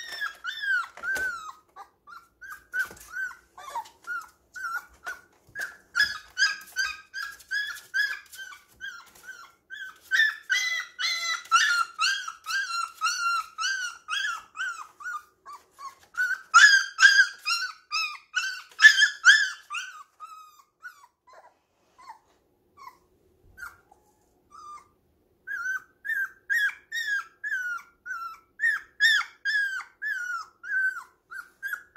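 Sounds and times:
puppy whining: 0.0s - 31.9s.

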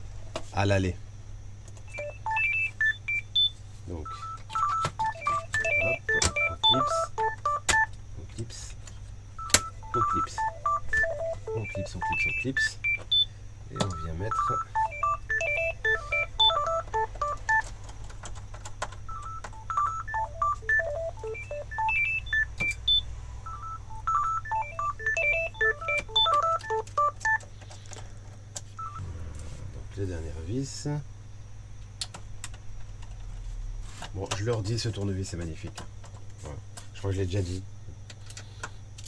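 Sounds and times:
electronic melody: 4.1s - 7.9s, 9.4s - 13.0s, 13.7s - 17.6s, 19.1s - 22.9s, 23.5s - 27.4s.

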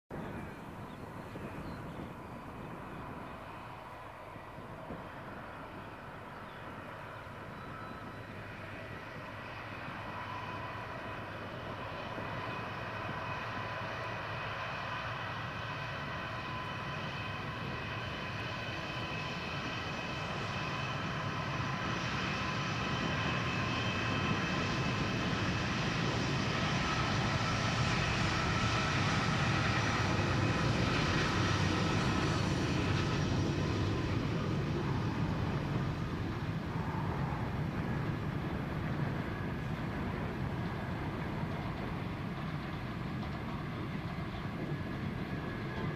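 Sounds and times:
diesel locomotive engines: 0.1s - 45.9s.

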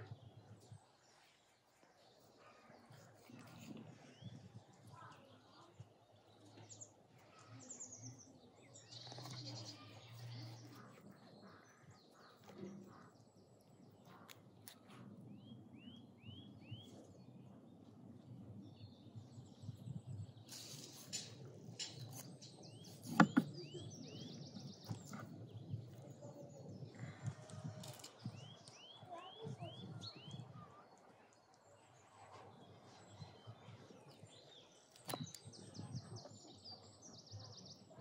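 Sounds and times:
knife cutting meat on wooden board: 22.9s - 23.6s.

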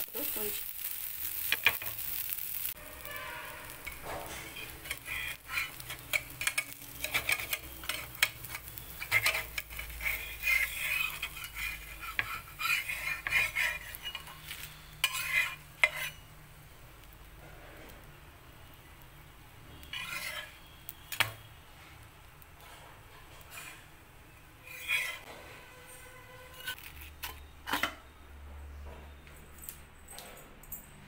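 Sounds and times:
batter sizzling in oil: 0.0s - 25.3s
metal spatula scraping griddle: 0.8s - 16.3s, 19.7s - 21.2s, 22.6s - 24.0s, 24.6s - 28.0s.

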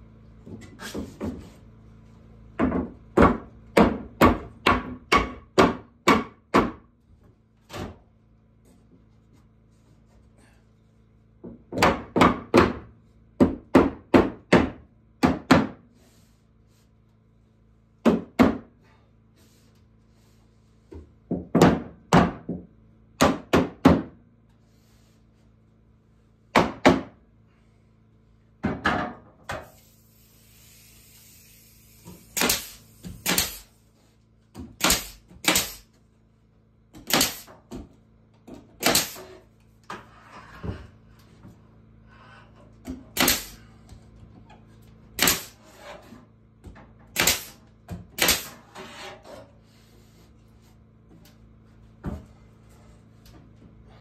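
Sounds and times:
wooden mallet knocking boards: 2.6s - 6.8s, 11.4s - 15.8s, 21.3s - 24.2s, 26.6s - 27.2s
pneumatic nail gun firing: 29.5s - 33.8s, 34.7s - 36.0s, 37.0s - 37.6s, 38.8s - 39.4s, 43.1s - 43.7s, 45.2s - 45.7s, 47.1s - 48.8s.

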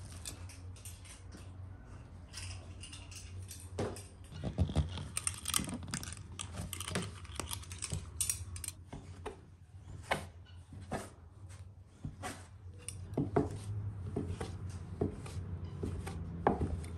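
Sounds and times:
hands working dough: 8.8s - 16.9s.

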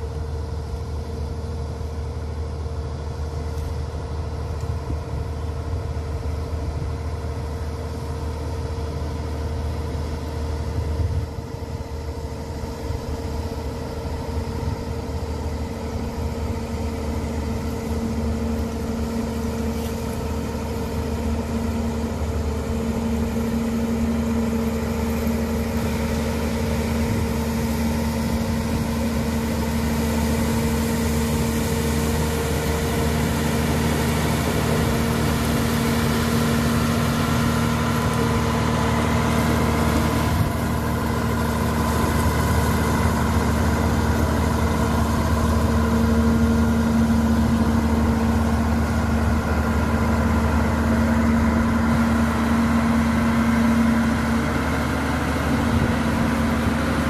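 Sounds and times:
diesel engine running: 0.0s - 57.0s
blade pushing gravel: 17.1s - 54.5s.

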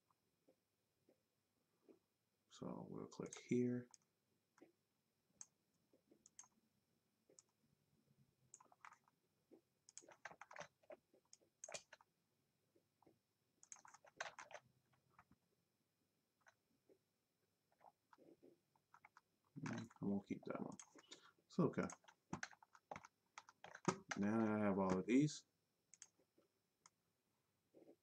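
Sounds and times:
mouse and keyboard clicking: 6.2s - 6.5s, 8.5s - 9.1s, 9.9s - 12.1s, 13.6s - 15.3s, 18.8s - 20.0s, 21.8s - 25.1s, 25.9s - 26.2s.

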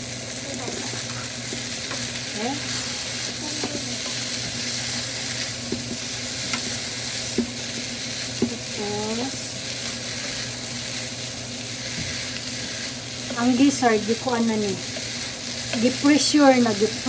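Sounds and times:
meat sizzling in a frying pan: 0.0s - 17.0s
spatula scraping and clicking: 5.7s - 8.6s
spatula knocking on pan: 8.4s - 8.6s.

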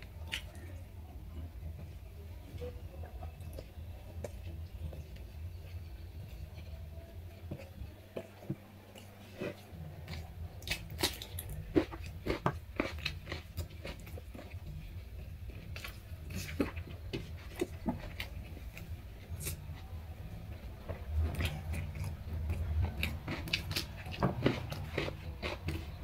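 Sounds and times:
low steady hum: 0.0s - 26.0s
person chewing with mouth smacks: 7.5s - 19.9s, 20.9s - 26.0s.

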